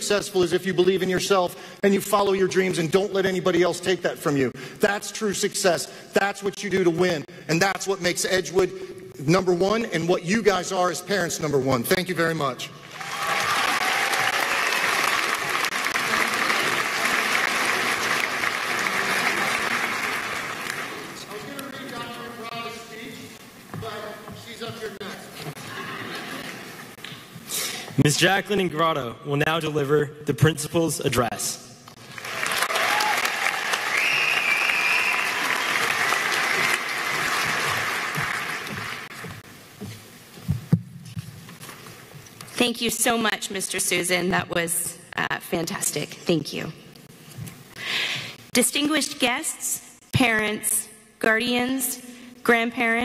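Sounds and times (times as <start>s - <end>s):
large audience applauding: 12.8s - 21.8s, 32.0s - 39.4s.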